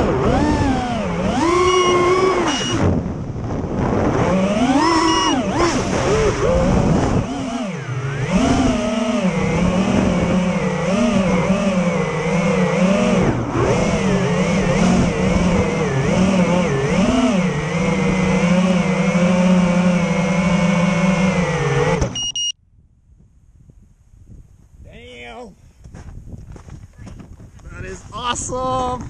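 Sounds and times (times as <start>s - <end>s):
quadcopter motors whining: 0.0s - 22.3s
short high beep: 1.7s - 2.8s, 5.0s - 5.4s, 22.2s - 22.6s.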